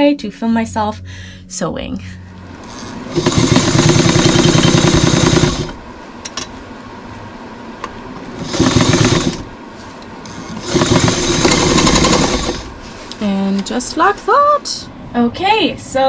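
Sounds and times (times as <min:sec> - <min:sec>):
sewing machine needle chatter: 0:03.1 - 0:05.8, 0:08.4 - 0:09.4, 0:10.6 - 0:12.6.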